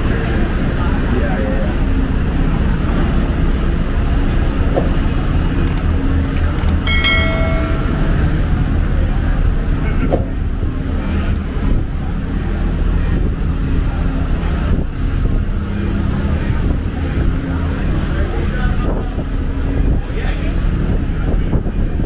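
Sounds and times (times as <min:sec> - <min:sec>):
city street traffic rumble: 0:00.0 - 0:22.0.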